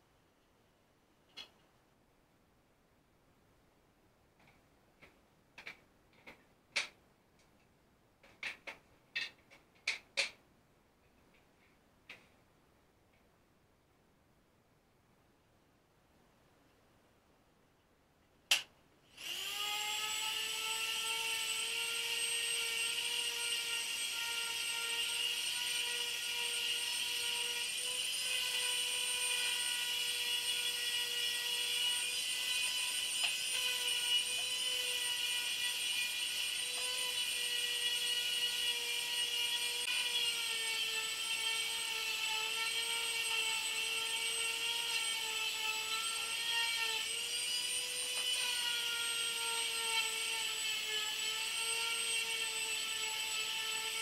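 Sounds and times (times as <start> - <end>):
orbital sander whining on wood: 19.2 - 54.0.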